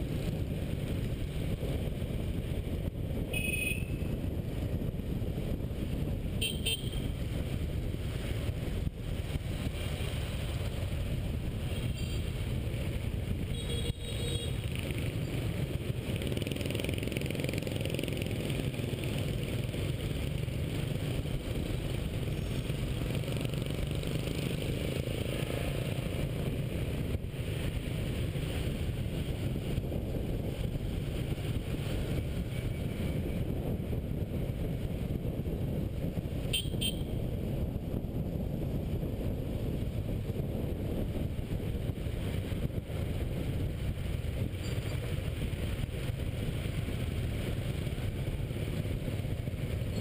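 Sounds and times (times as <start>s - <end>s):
motorbike engine and road noise: 0.0s - 50.0s
wind rush on microphone: 0.0s - 50.0s
horn beeps: 3.3s - 4.1s, 6.4s - 7.0s, 36.6s - 37.2s.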